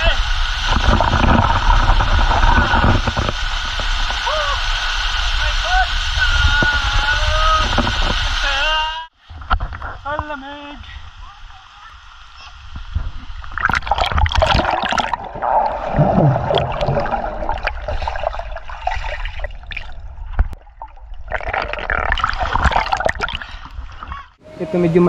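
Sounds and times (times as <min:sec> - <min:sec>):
water splashing and gurgling: 0:00.2 - 0:05.3, 0:12.6 - 0:24.4
muffled underwater bubbling: 0:13.6 - 0:23.5.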